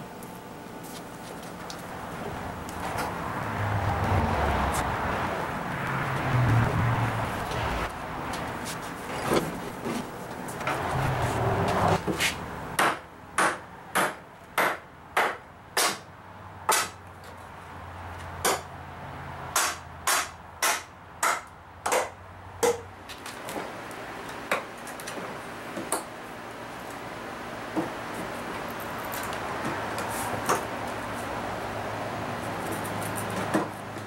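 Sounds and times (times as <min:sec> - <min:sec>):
rough scraping: 0:05.9 - 0:12.5.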